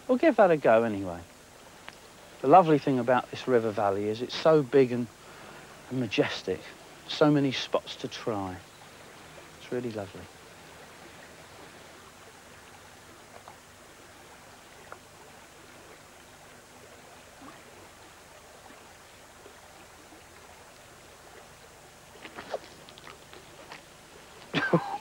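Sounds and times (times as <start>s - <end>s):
outdoor river-bank hiss: 0.0s - 25.0s
soft ticks: 1.8s - 2.1s.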